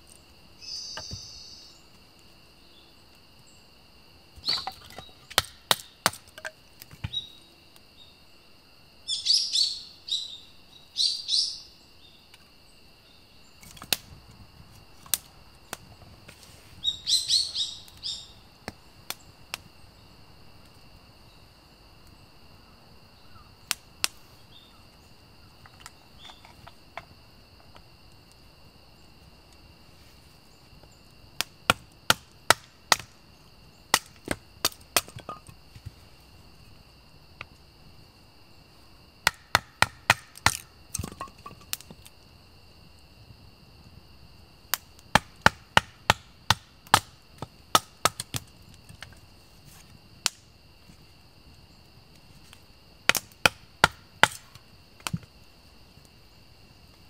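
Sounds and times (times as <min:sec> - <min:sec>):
axe chopping wood: 0:04.4 - 0:07.2, 0:31.4 - 0:33.1, 0:33.9 - 0:35.6, 0:39.2 - 0:41.6, 0:45.1 - 0:48.4, 0:53.1 - 0:54.4.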